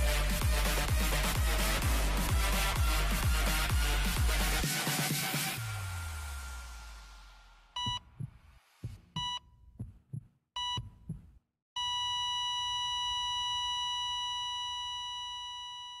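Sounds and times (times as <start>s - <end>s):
heartbeat thumps: 7.8s - 11.4s
heart monitor beeps: 7.8s - 16.0s
monitor flatline tone: 11.8s - 16.0s.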